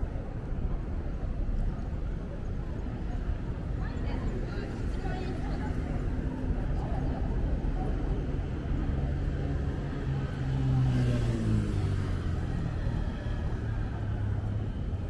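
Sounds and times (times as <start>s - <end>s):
low traffic rumble: 0.0s - 15.0s
car passing by: 9.4s - 14.9s.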